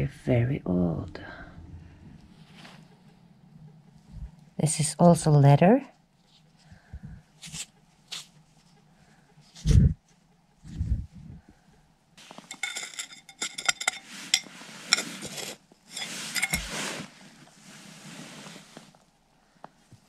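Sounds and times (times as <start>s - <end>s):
metal knife scraping gritty dirt: 12.2s - 17.1s
blade clinking on stones: 12.3s - 16.7s.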